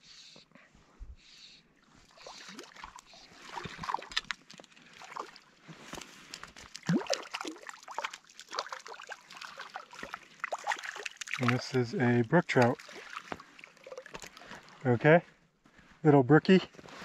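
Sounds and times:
fish splashing in water: 2.1s - 11.7s, 12.7s - 14.8s
water dripping: 2.2s - 14.8s.

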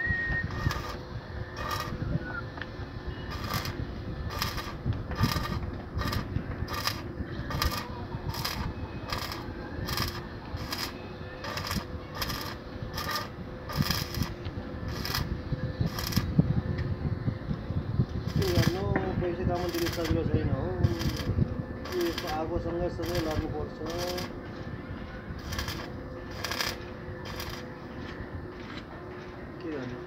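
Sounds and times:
steady hum: 0.0s - 29.6s
welding arc crackling: 0.5s - 1.0s, 1.6s - 2.3s, 3.3s - 15.3s, 15.9s - 16.3s, 18.3s - 18.9s, 19.5s - 20.2s, 20.8s - 24.3s, 25.4s - 27.7s.

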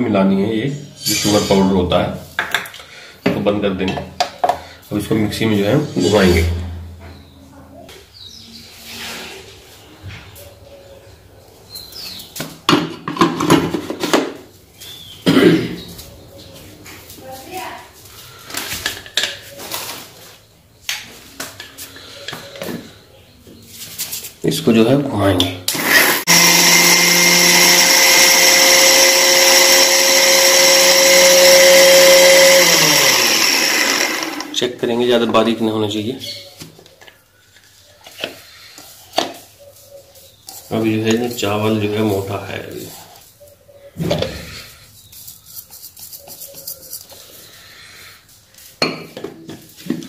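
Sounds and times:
mixer grinder motor whining: 25.7s - 34.6s.

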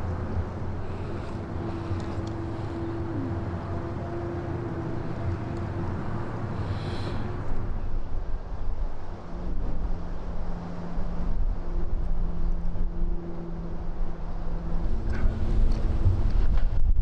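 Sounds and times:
low steady hum: 0.0s - 17.0s
low wind rumble: 0.0s - 17.0s.

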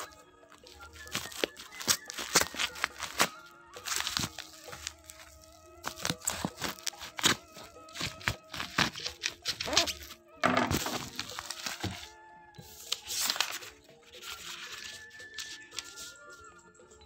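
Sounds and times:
plastic bag crinkling and tearing: 0.0s - 12.1s
background music: 0.0s - 17.0s.

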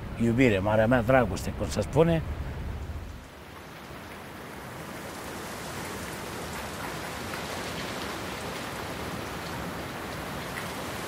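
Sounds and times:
rain pattering: 2.8s - 11.0s.

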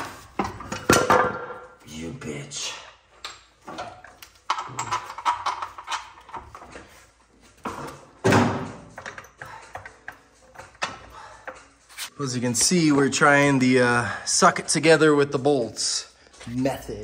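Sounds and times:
metal knocks and scraping: 3.6s - 11.7s.

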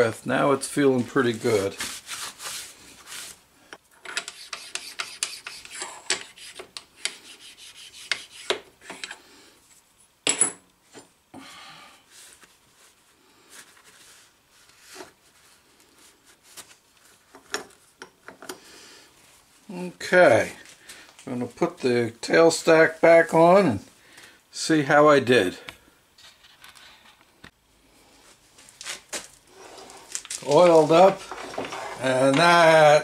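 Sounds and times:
rag rubbing on metal: 4.2s - 9.0s.

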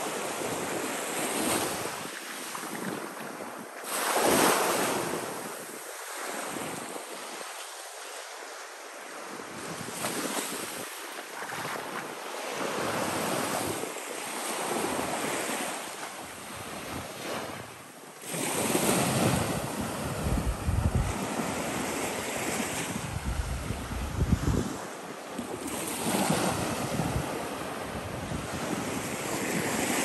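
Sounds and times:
waves washing on sandy shore: 0.0s - 30.0s
wind buffeting microphone: 18.9s - 29.8s.

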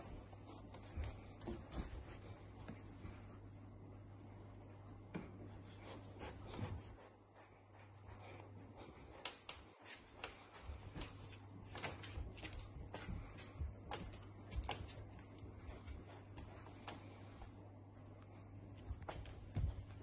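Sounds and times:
steady low hum: 0.0s - 20.0s
dog claws on hardwood floor: 9.2s - 17.1s.

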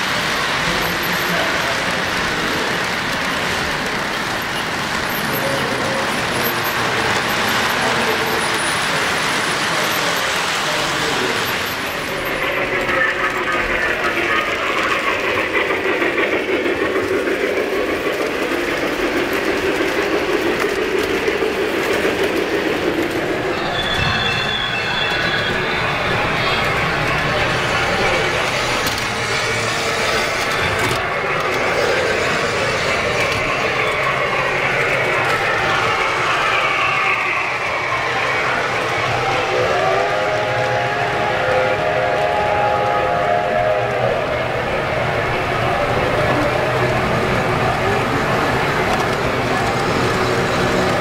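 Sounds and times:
model train wheels rattling: 26.3s - 37.0s.

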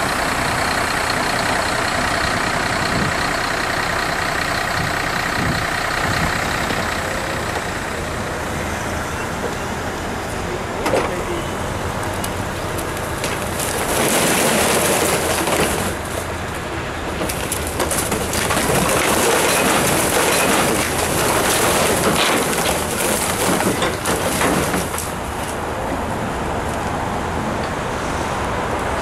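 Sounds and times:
plastic bottles clattering into skip: 17.3s - 25.1s.

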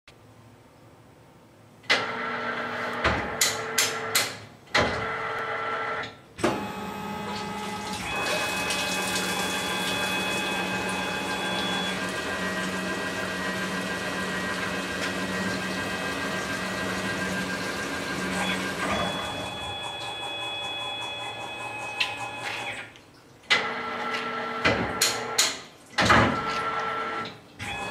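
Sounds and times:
lathe machine whine: 6.5s - 22.7s.

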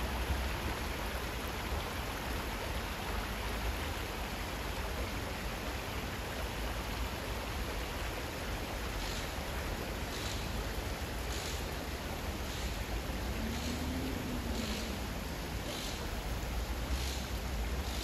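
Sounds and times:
stream water over stones: 0.0s - 18.0s.

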